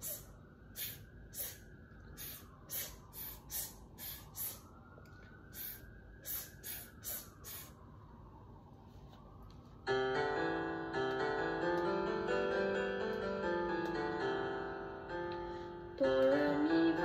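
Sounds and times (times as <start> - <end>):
sharp hissing exhales: 0.0 - 4.7, 5.5 - 7.8.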